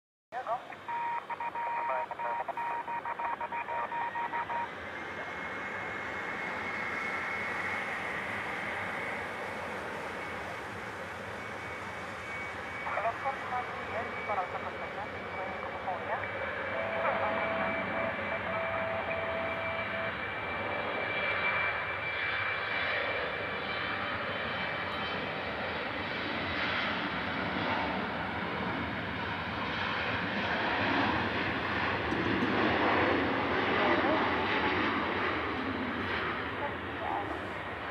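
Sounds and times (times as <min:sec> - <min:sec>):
radio chatter: 0:00.3 - 0:05.4, 0:12.8 - 0:20.2, 0:33.6 - 0:34.9, 0:36.0 - 0:37.9
jet engines running up: 0:00.7 - 0:37.9
rapidly pulsing electronic beep: 0:00.8 - 0:04.7, 0:16.7 - 0:20.2.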